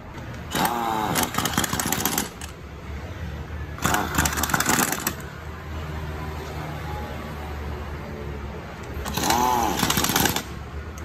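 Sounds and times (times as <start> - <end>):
pneumatic impact wrench hammering: 0.4 - 2.6, 3.8 - 5.2, 9.0 - 10.6.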